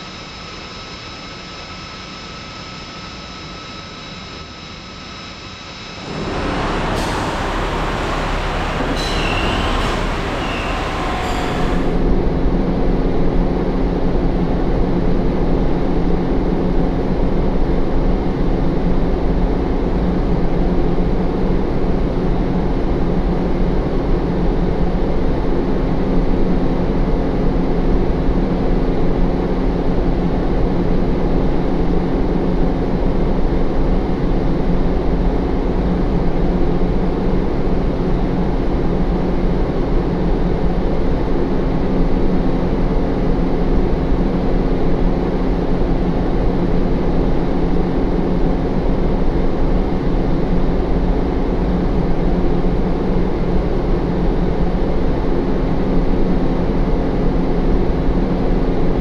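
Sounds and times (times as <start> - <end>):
factory machinery hum: 5.6 - 12.3.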